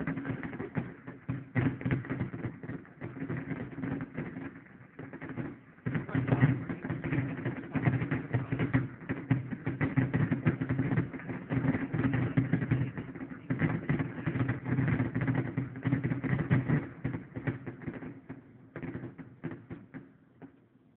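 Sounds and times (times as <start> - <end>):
fireworks bursting and crackling: 0.0 - 20.6.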